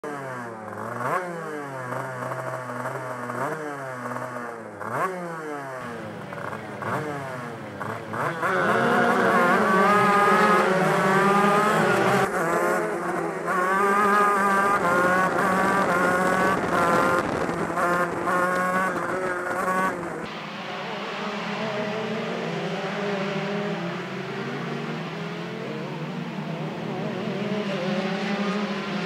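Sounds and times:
kart engine revving: 0.0 - 29.0
several kart engines at high revs: 0.0 - 29.0.

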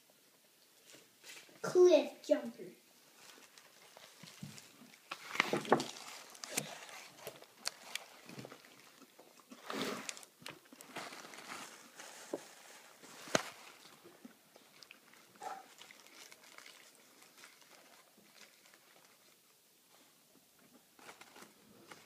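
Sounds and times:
rustle: 2.9 - 20.2
tortilla squishing and tearing: 3.2 - 19.5
mouth sounds of eating: 13.8 - 19.3.

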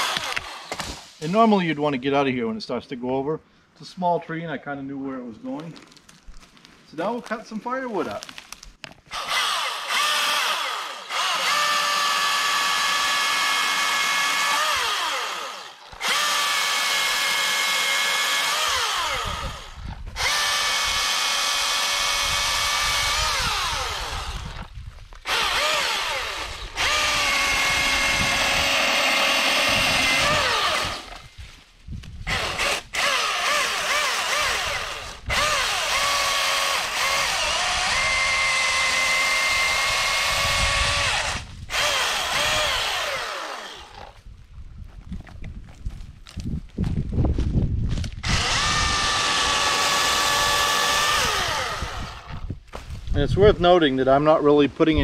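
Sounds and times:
electric chainsaw motor whining: 0.0 - 0.9, 9.1 - 31.3, 32.2 - 44.2, 48.0 - 52.5.

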